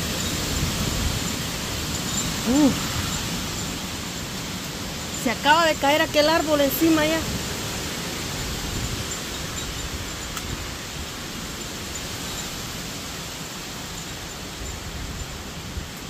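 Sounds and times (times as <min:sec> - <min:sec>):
heavy rain: 0:00.0 - 0:16.0
wind through trees: 0:00.0 - 0:16.0.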